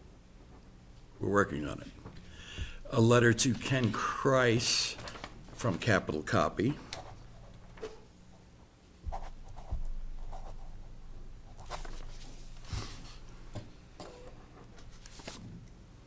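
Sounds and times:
low electrical hum: 0:00.0 - 0:16.0
paper rustling: 0:11.6 - 0:12.7, 0:14.6 - 0:15.5.

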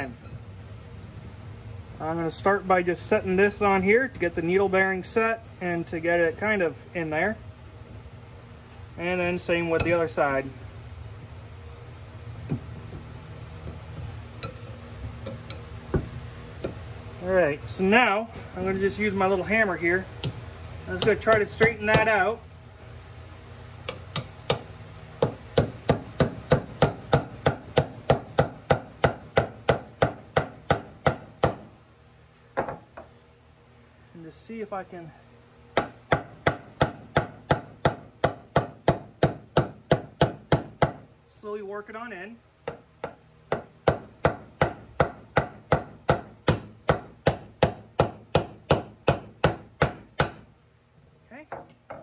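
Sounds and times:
hammer tapping metal: 0:14.4 - 0:16.8, 0:20.2 - 0:20.4, 0:21.0 - 0:22.2, 0:23.8 - 0:31.7, 0:42.6 - 0:50.4, 0:51.5 - 0:52.0.

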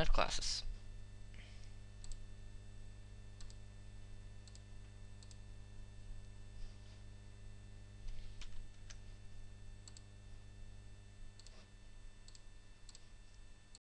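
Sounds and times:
low electrical hum: 0:00.0 - 0:13.8.

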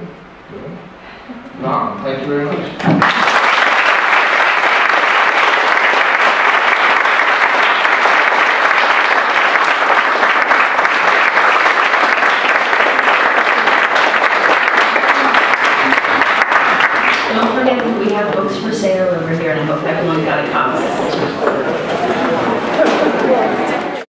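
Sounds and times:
audience applauding: 0:02.8 - 0:18.1.

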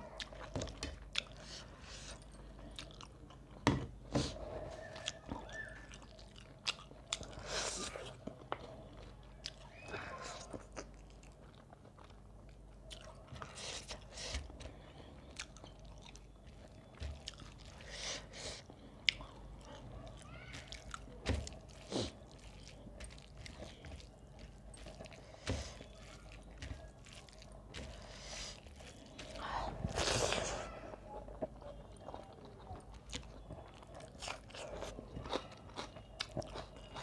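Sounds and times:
person chewing and smacking lips: 0:00.0 - 0:37.0
fingers mixing food on plate: 0:19.1 - 0:30.0.

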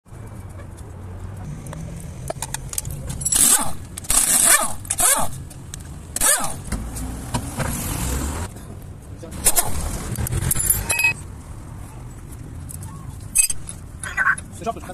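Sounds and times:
pneumatic impact wrench bursts: 0:03.3 - 0:05.4, 0:06.2 - 0:06.6.

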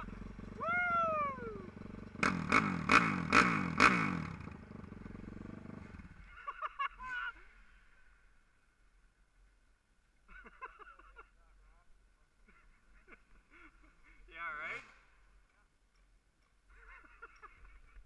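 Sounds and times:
dirt bike engine revving: 0:00.0 - 0:06.6
person's falling whoop: 0:00.6 - 0:01.7.

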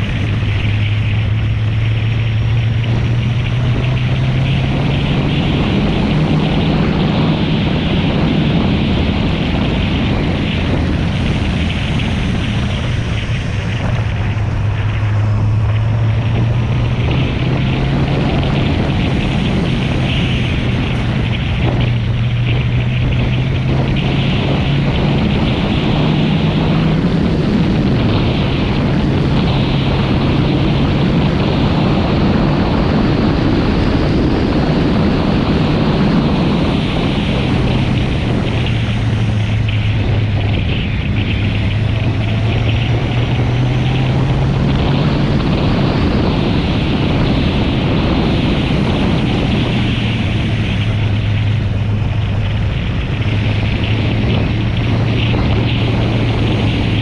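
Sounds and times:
motorcycle engine running: 0:00.0 - 0:57.0
wind rush: 0:00.0 - 0:57.0.

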